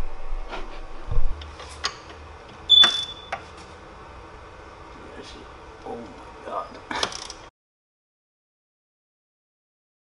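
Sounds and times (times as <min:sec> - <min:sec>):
ratchet wrench clicking: 0:07.1 - 0:07.4.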